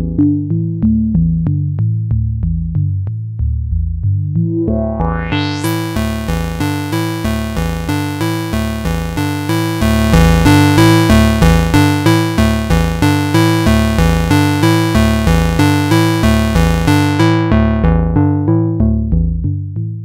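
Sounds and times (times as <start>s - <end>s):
synthesizer sequence of short notes: 4.4s - 17.9s.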